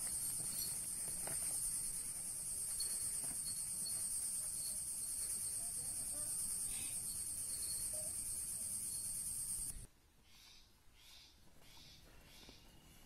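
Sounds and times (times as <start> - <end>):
insect chorus shrilling: 1.6 - 9.8.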